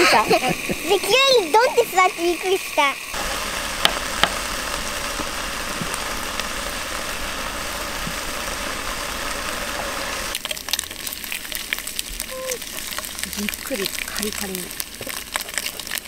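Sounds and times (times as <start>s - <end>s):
mechanical rumble and hiss: 0.0s - 10.3s.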